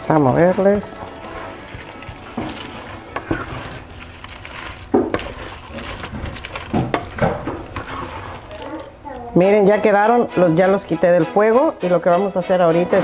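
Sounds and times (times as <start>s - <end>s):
wooden spoon scraping a pan: 0.0s - 9.1s.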